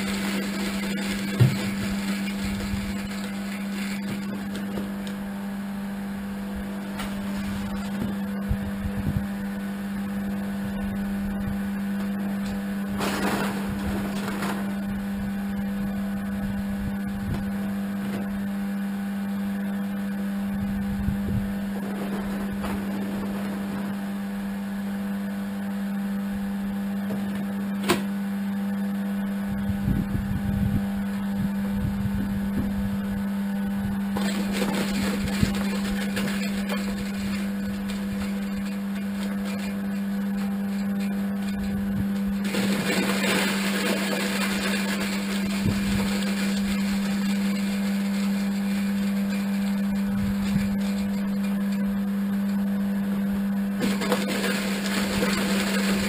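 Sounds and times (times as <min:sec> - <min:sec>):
electric motor humming: 0:00.0 - 0:56.0.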